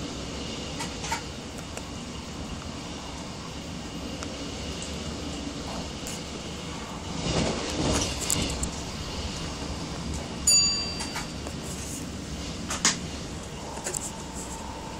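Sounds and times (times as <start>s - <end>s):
train rumbling: 0.0s - 14.9s
bell-like chime: 10.5s - 11.4s.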